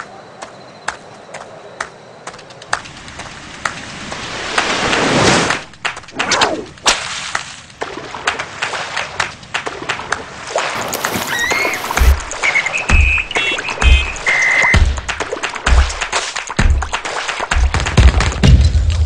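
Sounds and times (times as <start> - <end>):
deep bass thumps of music: 12.9 - 14.2, 14.8 - 17.0.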